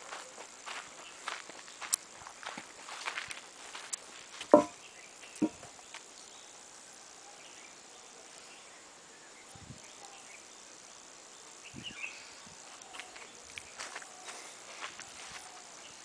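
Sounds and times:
high insect chirring: 0:00.0 - 0:16.0
soft low thumps: 0:04.5 - 0:04.8.

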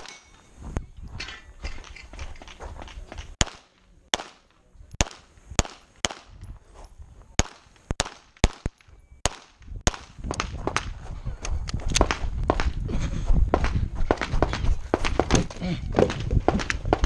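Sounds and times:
pistol shots: 0:03.4 - 0:06.4, 0:07.4 - 0:10.9.

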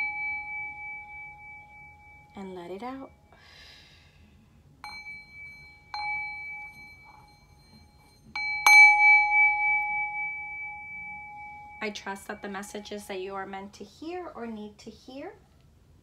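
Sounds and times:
small metal chime ringing: 0:00.0 - 0:03.4, 0:04.8 - 0:13.1.

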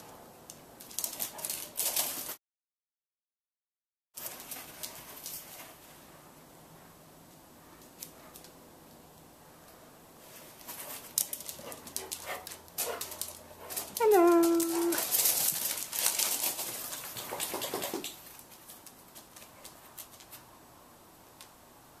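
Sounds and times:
dogs scuffling and rustling: 0:00.8 - 0:02.4, 0:04.2 - 0:06.2, 0:10.2 - 0:20.6
dog whining: 0:14.0 - 0:15.0.

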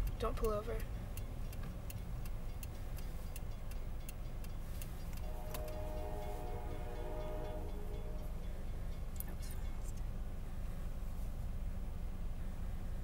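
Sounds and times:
crossing bell dinging: 0:03.4 - 0:09.9
train horn: 0:05.2 - 0:08.4.

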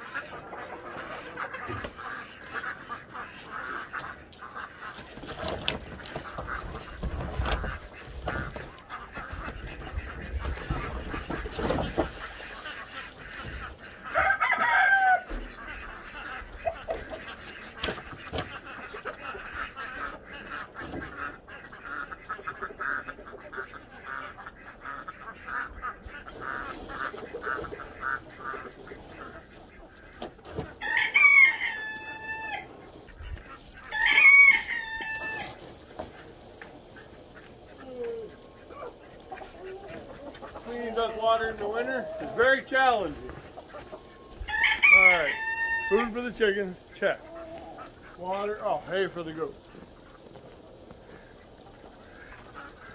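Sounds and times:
ducks quacking: 0:00.0 - 0:52.9
rooster crowing: 0:14.1 - 0:15.4, 0:30.8 - 0:32.7, 0:33.9 - 0:35.6, 0:44.5 - 0:46.1.

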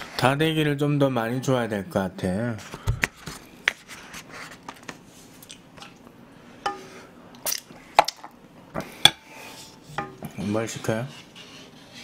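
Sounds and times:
soft eating sounds: 0:03.4 - 0:10.5.

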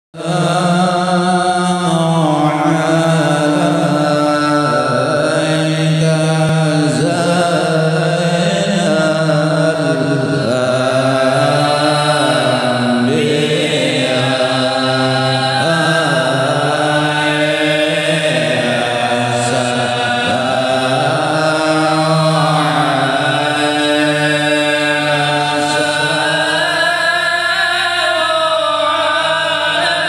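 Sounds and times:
voices chanting: 0:08.0 - 0:30.0.

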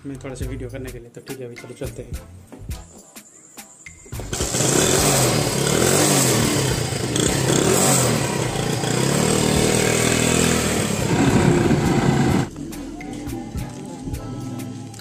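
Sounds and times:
motorcycle engine revving: 0:04.2 - 0:12.5.

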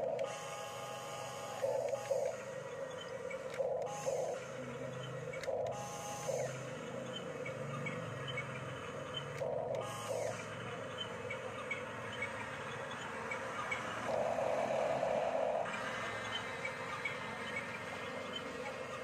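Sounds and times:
toy bulldozer motors whirring: 0:00.0 - 0:19.0.

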